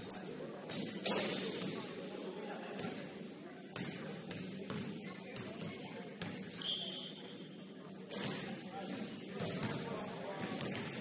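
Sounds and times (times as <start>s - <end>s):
shoe squeaks: 0.0s - 2.9s, 5.8s - 7.2s, 9.8s - 11.0s
voices echoing in a hall: 0.0s - 11.0s.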